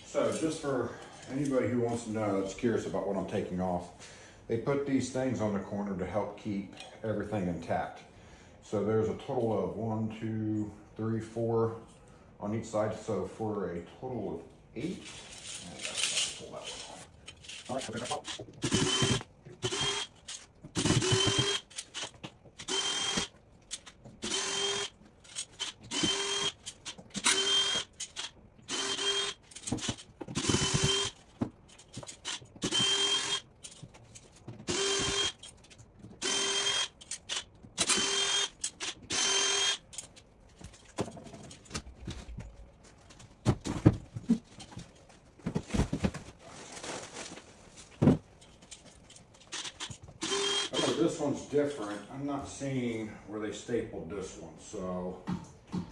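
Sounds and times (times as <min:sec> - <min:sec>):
cordless drill bursts: 0:18.6 - 0:20.1, 0:20.8 - 0:23.3, 0:24.2 - 0:25.0, 0:25.6 - 0:31.2, 0:32.2 - 0:33.5, 0:34.7 - 0:35.4, 0:36.2 - 0:39.8, 0:49.5 - 0:51.1.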